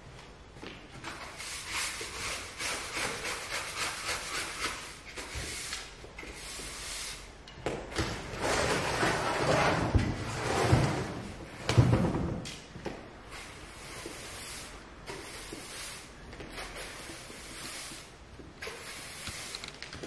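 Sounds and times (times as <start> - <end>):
broom sweeping wood floor: 1.0 - 7.3, 13.2 - 19.7.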